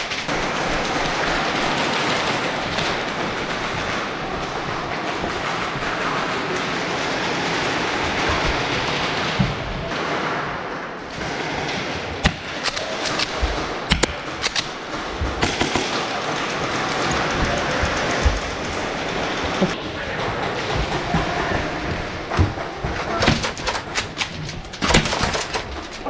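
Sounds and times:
airsoft guns firing: 0:00.0 - 0:26.0
steady rushing noise: 0:10.8 - 0:26.0.

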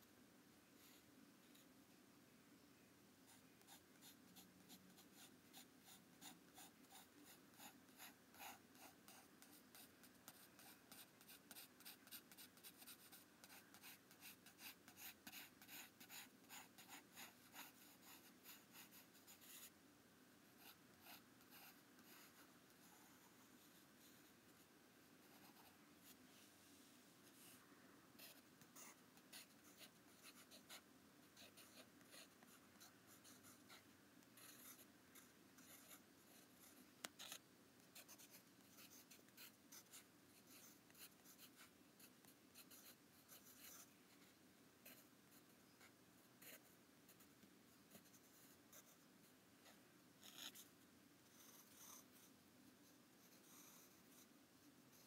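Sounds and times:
pencil scratching on paper: 0:03.3 - 0:19.7, 0:20.6 - 0:24.3, 0:28.2 - 0:43.9, 0:44.8 - 0:47.3, 0:47.9 - 0:49.0, 0:49.6 - 0:50.7, 0:51.3 - 0:52.3.

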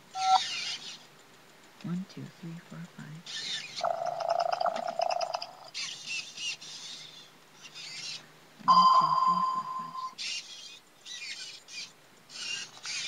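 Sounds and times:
steady beep-like tone: 0:00.2 - 0:00.5, 0:08.6 - 0:10.2
robot toy warbling chirp: 0:00.2 - 0:01.0, 0:03.3 - 0:13.0.

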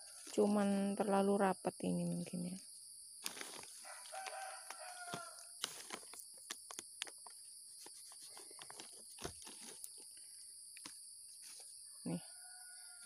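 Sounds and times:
carrots pulled from soil crackling: 0:03.2 - 0:07.2.

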